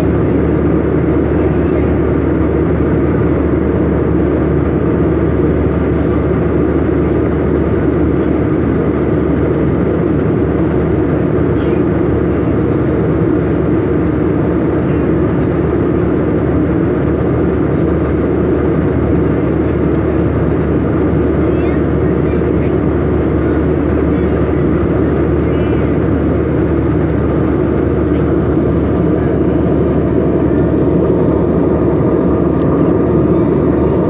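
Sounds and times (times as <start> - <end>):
airliner cabin drone: 0.0 - 34.0.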